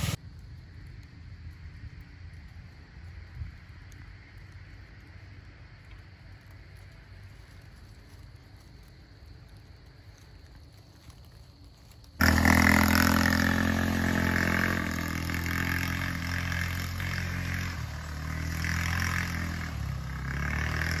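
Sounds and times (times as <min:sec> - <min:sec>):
buggy engine running: 0:12.2 - 0:21.0.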